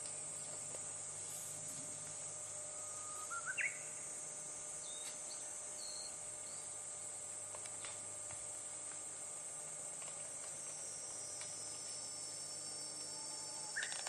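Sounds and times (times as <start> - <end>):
insects droning: 0.0 - 14.0
bird call rising in pitch: 2.8 - 3.9.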